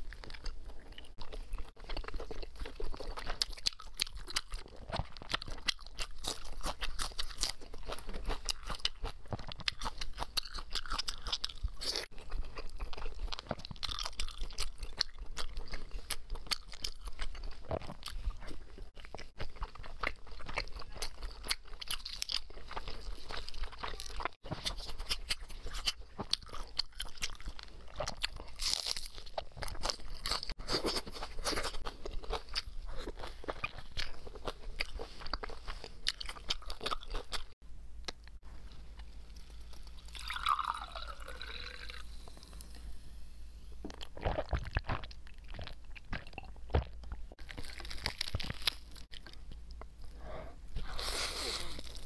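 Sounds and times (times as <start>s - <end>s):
close-miked chewing: 0.0s - 42.7s, 43.9s - 52.0s
crunching crisp chicken skin: 47.4s - 49.4s.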